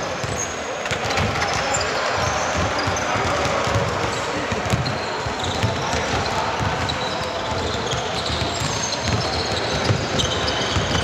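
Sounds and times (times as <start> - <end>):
basketball dribbling thuds: 2.6 - 11.0
shoe squeaks: 4.6 - 11.0.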